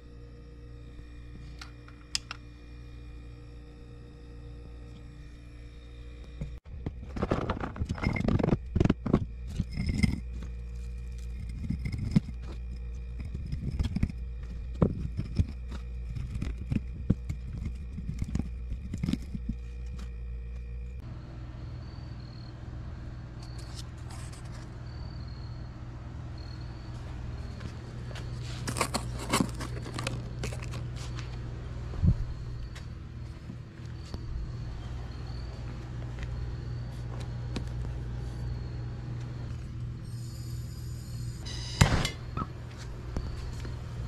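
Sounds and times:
steady low hum: 0.0s - 44.0s
metal clinking and scraping: 7.0s - 20.1s, 28.3s - 31.1s.

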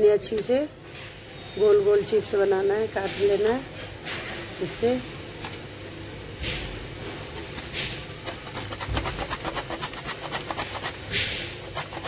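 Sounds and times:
potato slicer rasping: 7.5s - 12.0s.

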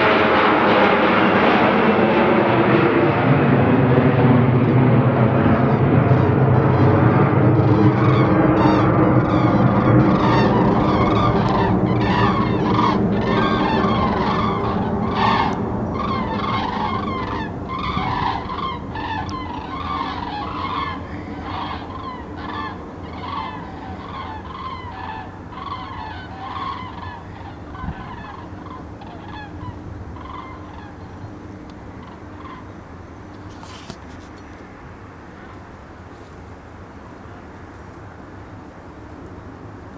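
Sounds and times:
jet engine rumble: 0.0s - 39.9s
birds honking overhead: 5.6s - 34.4s.

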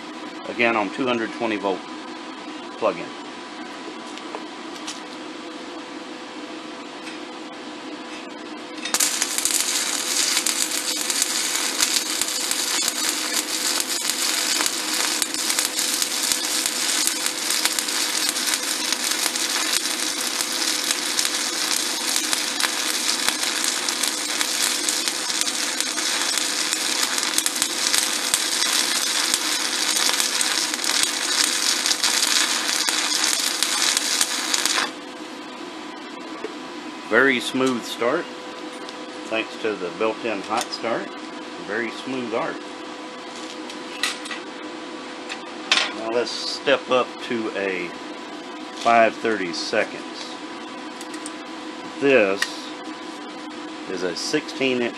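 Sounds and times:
steady hum: 0.0s - 54.9s
welding arc crackling hiss: 8.8s - 35.4s.

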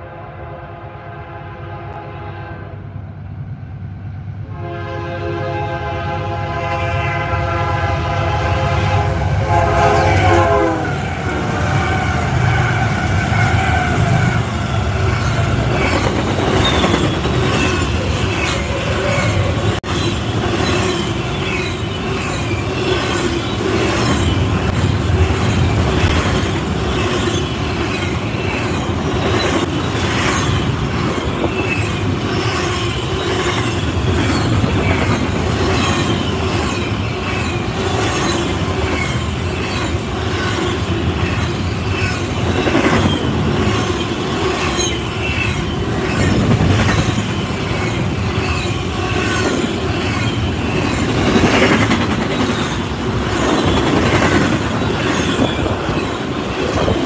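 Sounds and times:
train horn: 0.0s - 3.0s, 4.4s - 14.3s
train rumbling past: 0.0s - 57.0s
high wheel squeal: 13.9s - 24.7s, 26.8s - 51.4s, 54.8s - 57.0s.

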